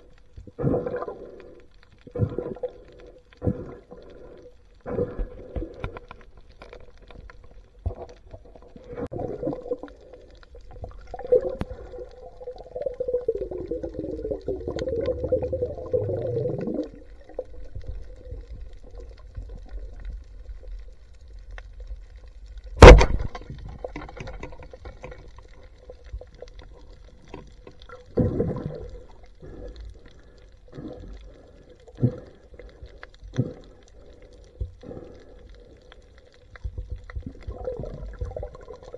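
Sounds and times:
faint steady hum: 0:00.0 - 0:38.9
underwater water swishes: 0:00.0 - 0:38.9
sharp loud click: 0:22.8 - 0:23.4.

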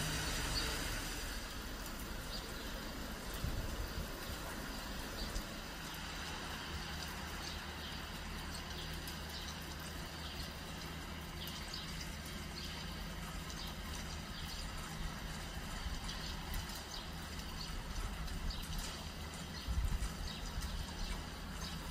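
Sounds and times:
steady rain falling: 0:00.0 - 0:21.9.

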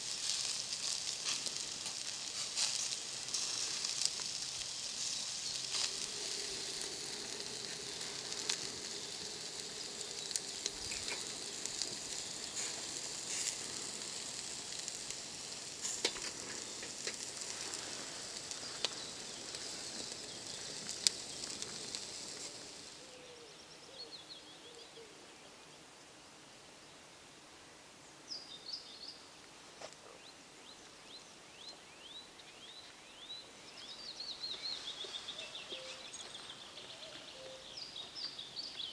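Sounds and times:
meat sizzling on a grill: 0:00.0 - 0:23.2
bird chirps: 0:30.2 - 0:38.9.

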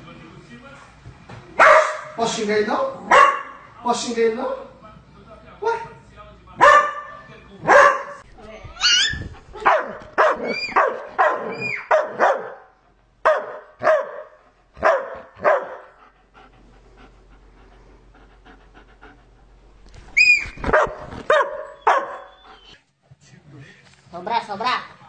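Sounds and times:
dog barking: 0:01.6 - 0:02.2, 0:03.1 - 0:03.7, 0:06.6 - 0:08.2, 0:09.6 - 0:15.9, 0:20.7 - 0:22.4.

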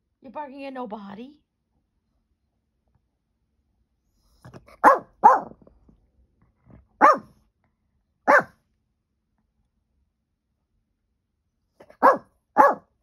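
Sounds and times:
dog barking: 0:04.5 - 0:05.6, 0:07.0 - 0:07.4, 0:08.2 - 0:08.6, 0:11.8 - 0:13.0.

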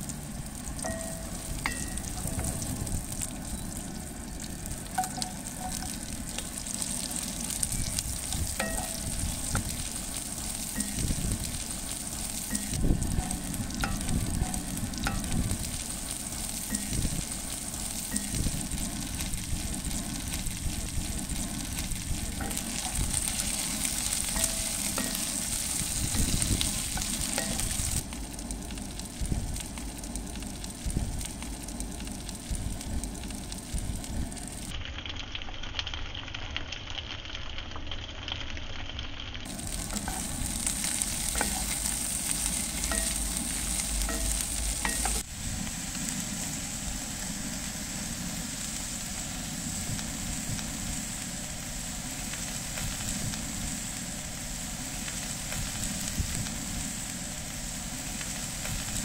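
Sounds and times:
vegetables sizzling in a pot: 0:00.0 - 0:59.0
wooden spoon stirring and scraping: 0:04.8 - 0:28.2, 0:39.5 - 0:45.3.

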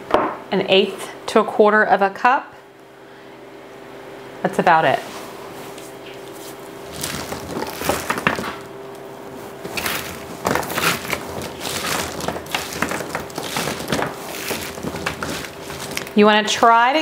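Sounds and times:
hands tossing fries on pan: 0:06.9 - 0:08.6, 0:09.6 - 0:17.0.

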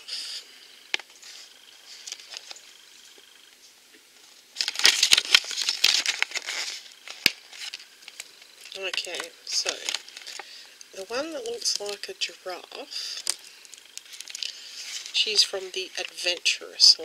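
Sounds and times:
paper leaflet rustling: 0:01.0 - 0:02.7, 0:04.2 - 0:12.1, 0:13.2 - 0:16.6.

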